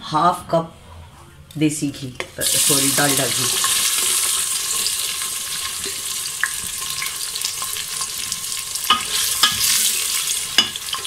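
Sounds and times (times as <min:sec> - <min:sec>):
onions sizzling in fat: 0:02.2 - 0:11.0.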